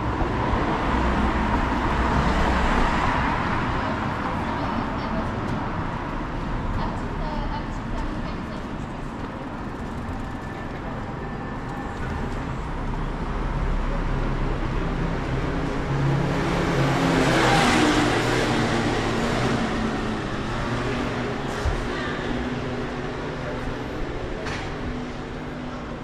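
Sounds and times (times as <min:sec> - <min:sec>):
street traffic: 0:00.0 - 0:26.0
vehicle passing close by: 0:13.3 - 0:23.8.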